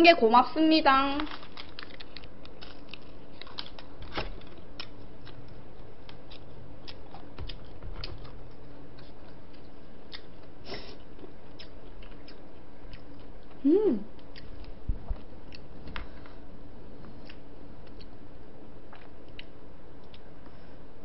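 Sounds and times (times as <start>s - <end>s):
person chewing: 1.3s - 16.2s, 17.1s - 18.2s.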